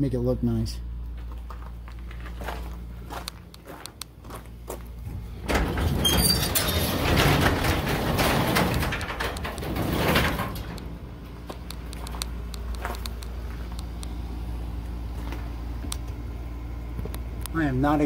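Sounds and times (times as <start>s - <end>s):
steady low hum: 0.0s - 18.0s
garage door rumbling and rattling: 3.7s - 13.5s.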